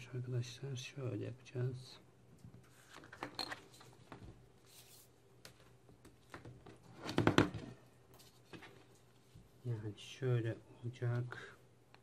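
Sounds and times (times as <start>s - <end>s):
chalk and cloth rustling: 2.5s - 7.0s, 8.1s - 9.8s.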